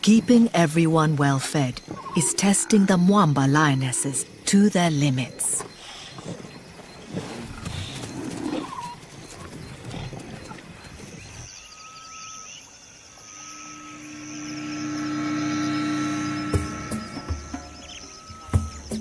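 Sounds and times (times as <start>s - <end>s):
lionesses growling: 1.6s - 11.5s
music with long held notes: 14.1s - 19.0s.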